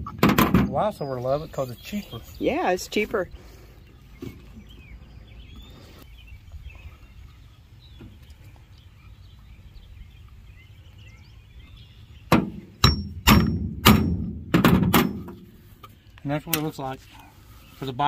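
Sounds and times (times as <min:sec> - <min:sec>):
bird chirps: 0:03.6 - 0:13.4.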